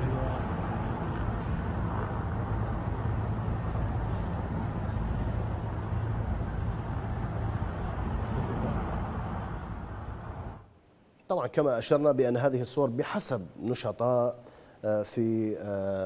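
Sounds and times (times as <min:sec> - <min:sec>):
helicopter rotor and engine rumble: 0:00.0 - 0:10.7.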